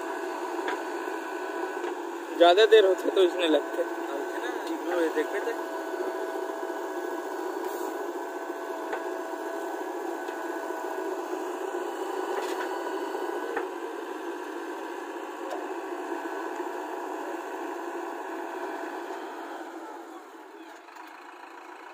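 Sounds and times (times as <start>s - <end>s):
diesel engine running: 0.0s - 21.9s.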